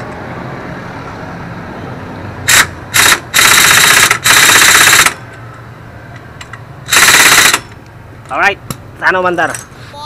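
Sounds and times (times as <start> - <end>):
pneumatic impact wrench hammering: 2.4 - 5.3, 6.9 - 7.8.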